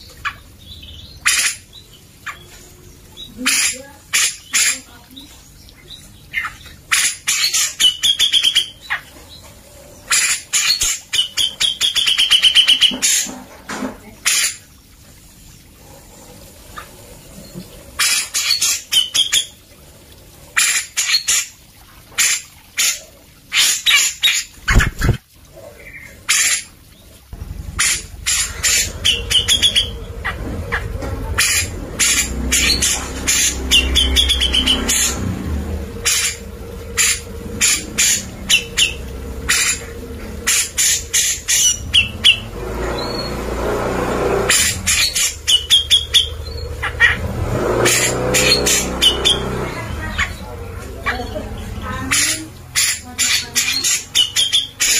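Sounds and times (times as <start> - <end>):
low steady rumble: 27.0 - 53.6
bulbul singing: 27.3 - 43.5, 44.4 - 54.9.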